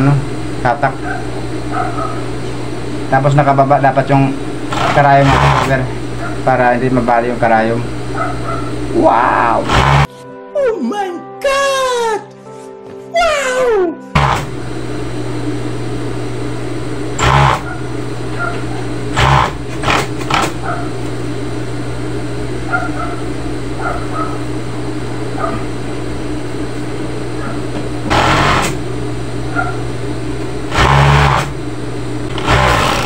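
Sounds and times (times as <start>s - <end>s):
sewing machine motor humming: 4.6s - 6.2s, 9.5s - 10.1s, 14.2s - 14.6s, 17.2s - 20.7s, 28.1s - 28.9s, 30.7s - 31.6s, 32.2s - 33.0s
sewing machine stitching bursts: 4.7s - 5.8s, 9.7s - 10.1s, 14.2s - 14.5s, 17.2s - 17.6s, 19.1s - 20.6s, 28.1s - 28.8s, 30.7s - 31.6s, 32.3s - 33.0s.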